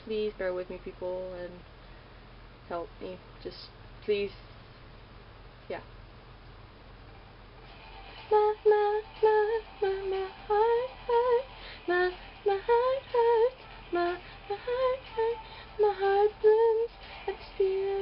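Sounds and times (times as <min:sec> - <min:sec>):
person singing unaccompanied: 0:08.1 - 0:18.0.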